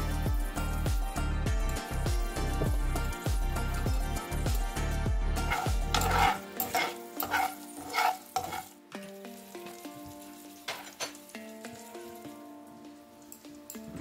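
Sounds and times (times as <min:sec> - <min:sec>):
oil sizzling: 0:01.7 - 0:14.0
spoon scraping a frying pan: 0:05.4 - 0:08.8, 0:09.4 - 0:12.2.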